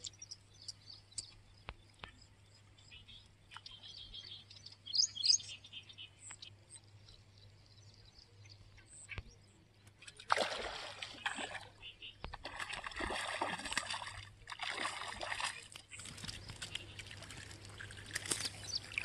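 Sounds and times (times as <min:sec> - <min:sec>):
birds chirping: 0:00.0 - 0:10.2, 0:11.0 - 0:13.0, 0:15.4 - 0:19.0.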